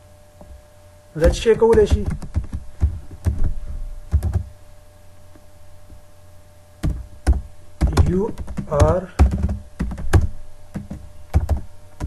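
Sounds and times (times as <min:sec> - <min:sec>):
keyboard typing: 0:01.2 - 0:03.4, 0:04.1 - 0:04.5, 0:06.8 - 0:11.7.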